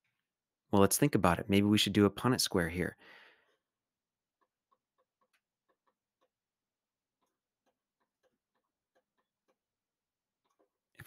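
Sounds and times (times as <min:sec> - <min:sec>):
stylus tapping on tablet: 0:04.3 - 0:09.8.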